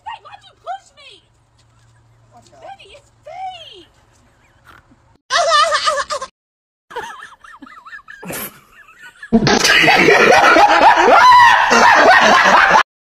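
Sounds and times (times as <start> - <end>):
person laughing loudly: 5.3 - 6.3, 6.9 - 12.8.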